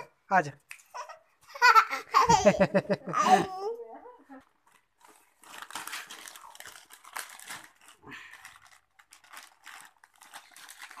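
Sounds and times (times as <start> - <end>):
foil packet crinkling: 4.5 - 11.0.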